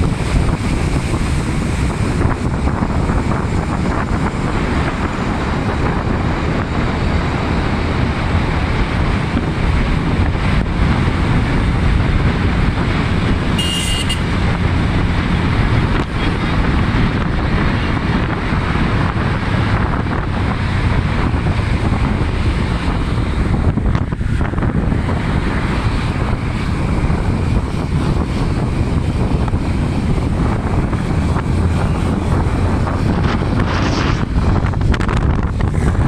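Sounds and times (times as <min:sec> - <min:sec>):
motorbike engine and road noise: 0:00.0 - 0:36.0
wind buffeting microphone: 0:00.0 - 0:36.0.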